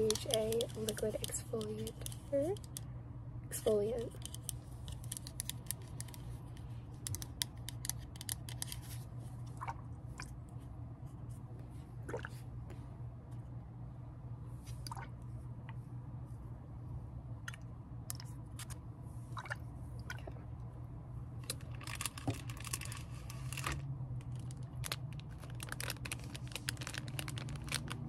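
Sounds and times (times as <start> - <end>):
plastic bag crinkling: 21.5 - 28.0.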